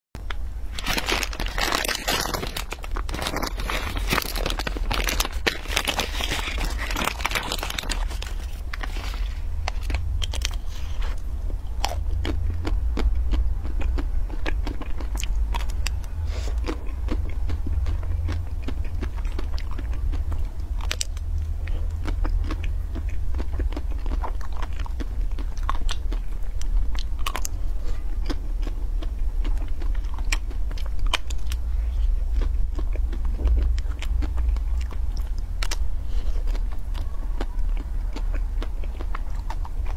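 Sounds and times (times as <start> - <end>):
crunching bites and chewing: 0.2 - 39.9
low hum: 0.2 - 39.9
plastic wrapper crinkling: 0.7 - 11.3.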